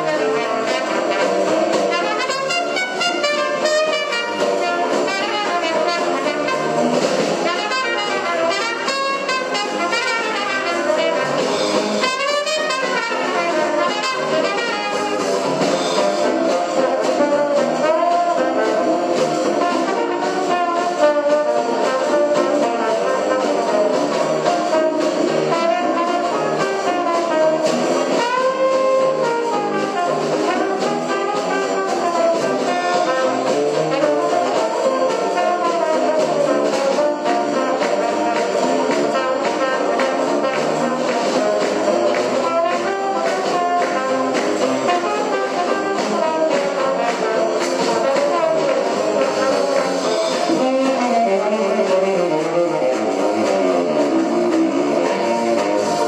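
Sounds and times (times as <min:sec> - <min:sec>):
brass jazz music: 0:00.0 - 0:56.0.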